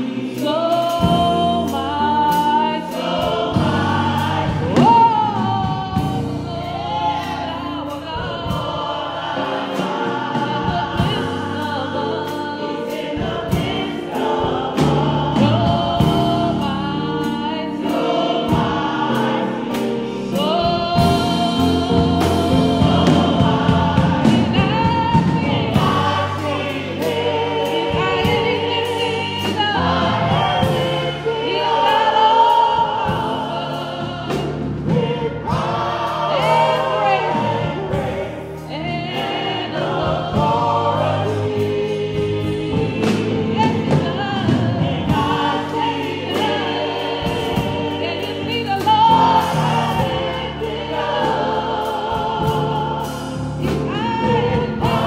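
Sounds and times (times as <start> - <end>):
bass: 0.0 - 55.0
choir singing: 0.0 - 55.0
drums: 0.0 - 55.0
woman singing lead: 47.6 - 50.2.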